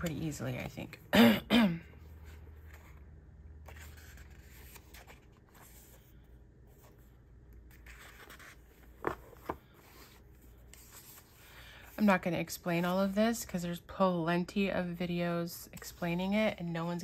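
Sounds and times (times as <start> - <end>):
paper pages rustling: 2.2 - 12.1.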